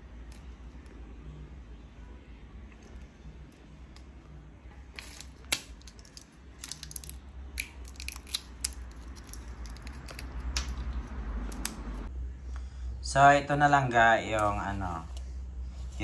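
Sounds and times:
low steady hum: 0.0 - 16.0
tamarind shells cracking: 4.9 - 12.1.

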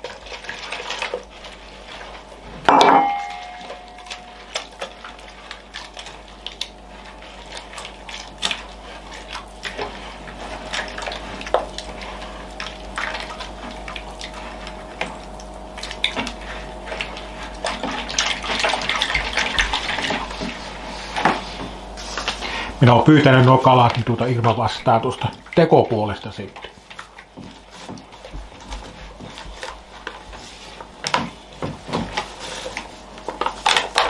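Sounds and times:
hand squelching wet dough: 0.0 - 34.0
knocks against bowl: 2.7 - 3.8.

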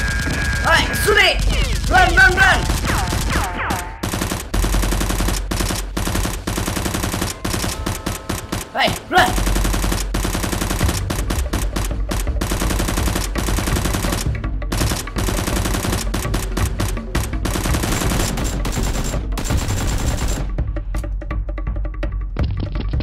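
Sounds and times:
automatic gunfire: 0.0 - 20.5
background music: 0.0 - 23.0.

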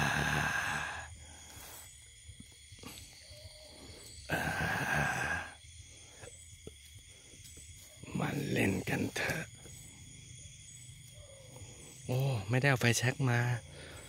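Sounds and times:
man sighing breathily: 0.0 - 1.3, 4.3 - 5.6.

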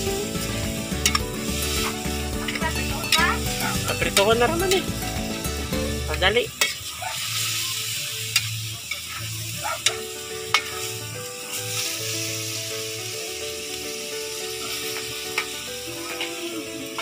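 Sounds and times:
noodles sizzling in a wok: 0.0 - 17.0
metal ladle scraping a wok: 6.5 - 11.0.

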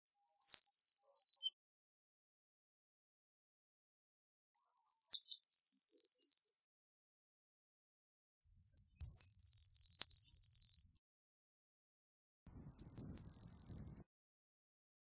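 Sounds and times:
blue tit singing: 0.1 - 1.6, 4.6 - 6.7, 8.5 - 11.0, 12.5 - 14.0.

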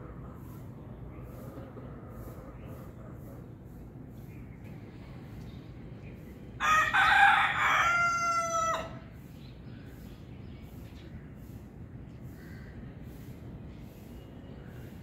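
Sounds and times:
rooster crowing: 6.6 - 9.0.

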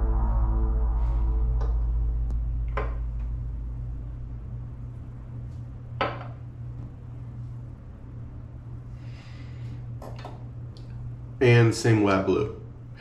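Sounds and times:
music: 0.0 - 2.3
low steady hum: 0.0 - 13.0.

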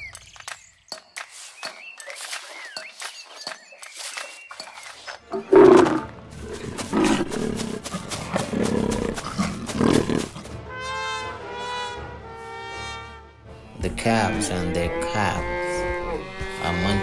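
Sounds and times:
tiger roaring and growling: 5.4 - 10.5.

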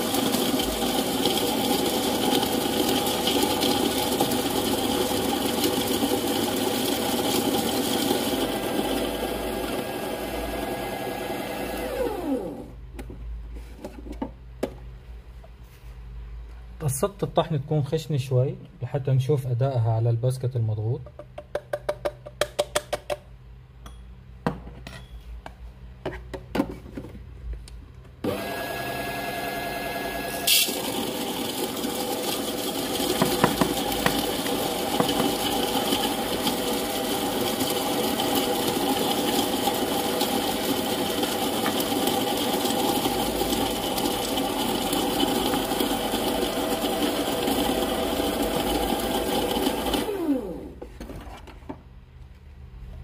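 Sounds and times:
coffee grounds tapping: 33.1 - 34.2.

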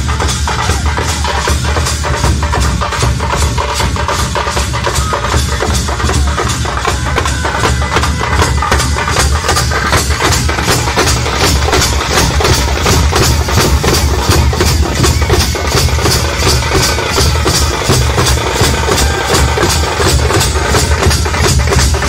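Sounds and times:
drums beating fast rhythm: 0.0 - 22.0.

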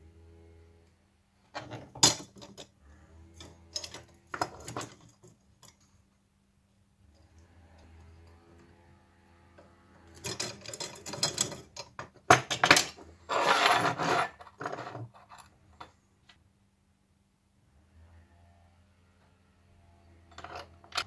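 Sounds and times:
metal parts scraping and rattling: 3.3 - 5.9, 10.0 - 16.0, 20.3 - 21.0.

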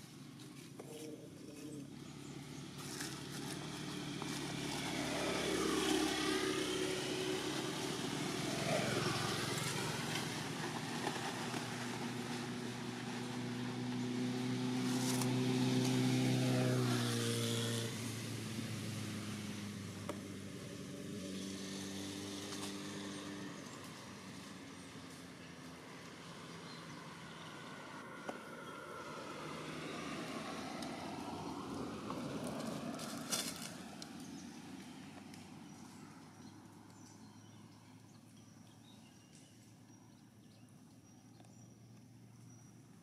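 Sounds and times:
engine droning: 0.0 - 43.0.

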